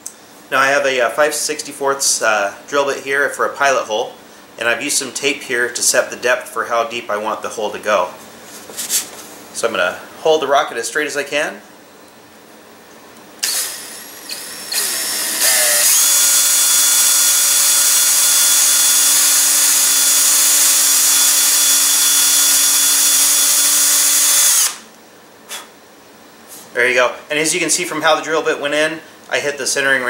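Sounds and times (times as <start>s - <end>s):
cordless drill whining: 13.4s - 24.8s.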